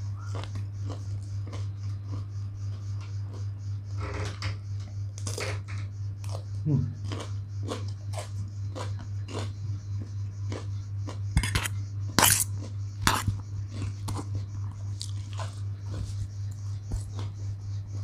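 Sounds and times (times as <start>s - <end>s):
chewing with soft crunches: 0.0s - 3.9s, 6.2s - 18.0s
fork scraping metal bowl: 11.4s - 13.4s.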